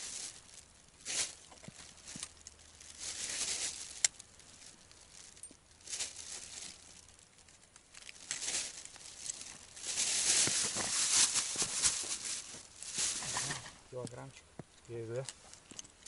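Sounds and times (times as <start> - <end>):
clothing rustling: 8.0 - 13.7.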